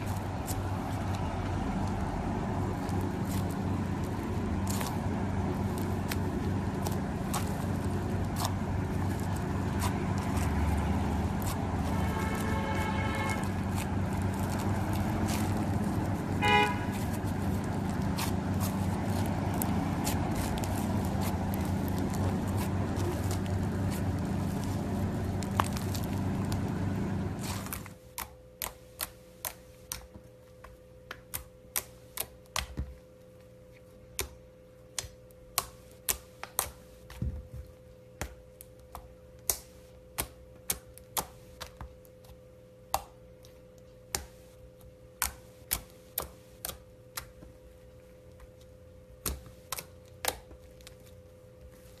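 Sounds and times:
slime crackling and crunching: 0:00.0 - 0:28.0.

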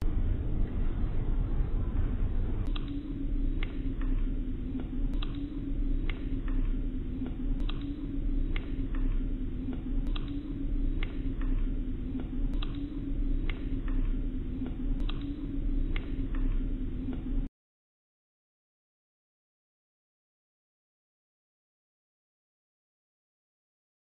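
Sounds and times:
low hum: 0:00.0 - 0:17.5
vinyl crackle clicks and pops: 0:05.1 - 0:14.2.

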